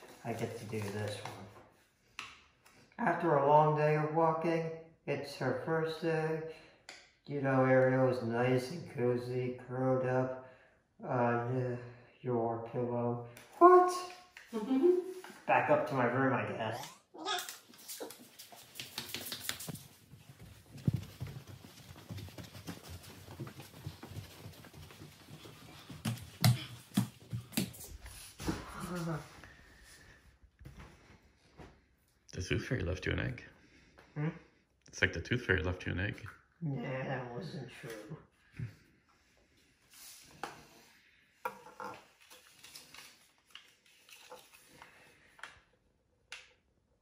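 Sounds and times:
paper rustling: 0:00.0 - 0:01.6, 0:17.4 - 0:28.4, 0:42.1 - 0:45.0
footsteps on carpeted stairs: 0:18.1 - 0:28.7.

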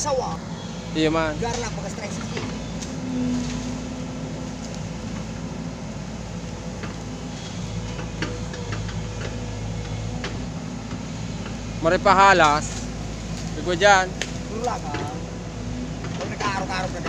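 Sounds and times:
excavator diesel engine running: 0:00.0 - 0:17.0
sharp clicks and cracks: 0:14.2 - 0:15.2.

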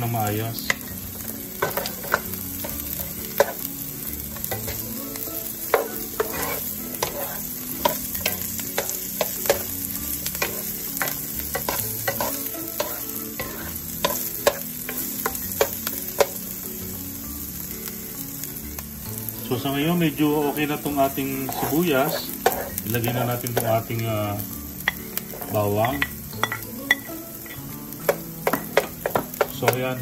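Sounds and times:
onion sizzling in oil: 0:00.0 - 0:30.0
wooden spoon knocking pan: 0:28.1 - 0:30.0.

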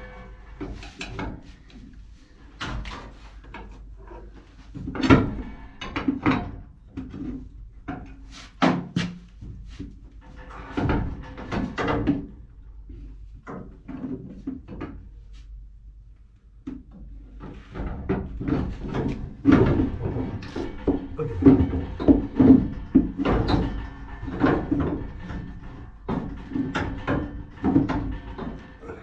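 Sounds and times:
metal knocks clunks and scrapes: 0:00.0 - 0:01.9, 0:02.5 - 0:12.5, 0:17.2 - 0:29.0.

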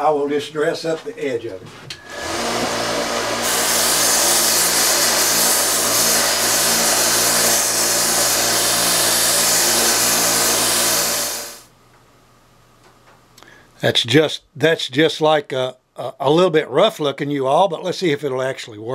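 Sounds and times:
belt sander motor hum: 0:02.0 - 0:11.6
steel grinding on sander belt: 0:02.0 - 0:11.6.

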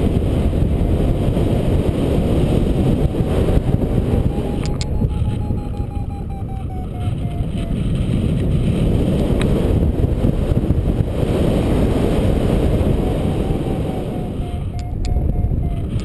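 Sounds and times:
wind buffeting microphone: 0:00.0 - 0:16.0
variometer beeping: 0:01.6 - 0:08.0, 0:12.5 - 0:16.0.

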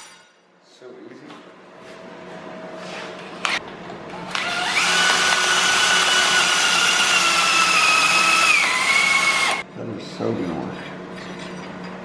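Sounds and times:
cordless drill whining: 0:04.3 - 0:09.6
drill bit boring metal: 0:04.4 - 0:09.6.

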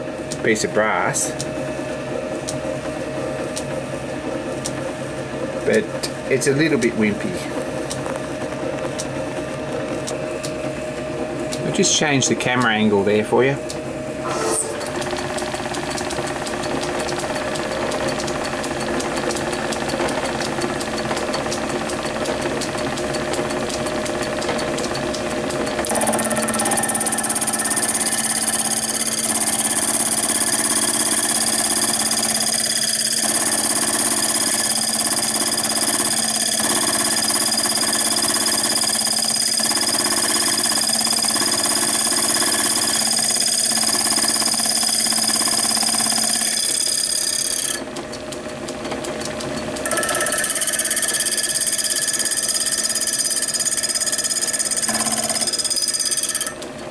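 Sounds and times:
metal lathe running: 0:00.0 - 0:56.9
steady high whine: 0:11.5 - 0:32.2.

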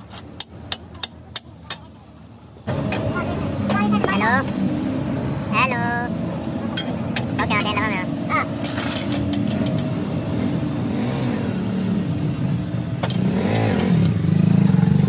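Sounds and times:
vehicle engines running: 0:00.0 - 0:15.0
engine revving: 0:07.4 - 0:15.0.

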